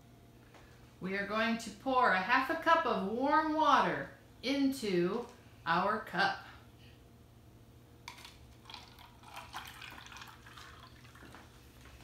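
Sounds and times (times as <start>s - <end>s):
water pouring into cup: 8.1s - 11.9s.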